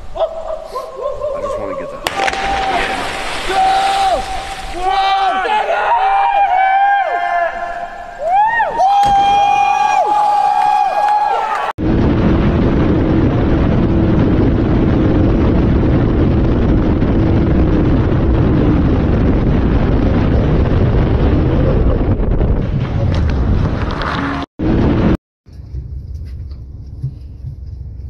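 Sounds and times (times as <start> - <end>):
water spray splashing: 2.2 - 4.9
wind buffeting microphone: 11.8 - 24.5.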